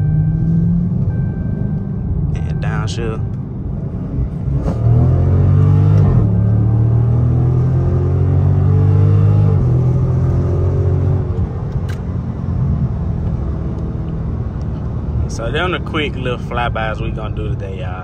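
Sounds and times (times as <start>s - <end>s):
car engine accelerating hard: 3.9s - 17.7s.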